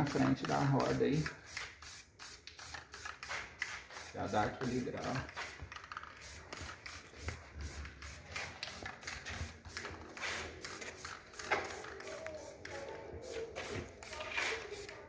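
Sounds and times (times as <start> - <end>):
aerosol spray hissing: 0.0 - 5.6, 6.2 - 15.0.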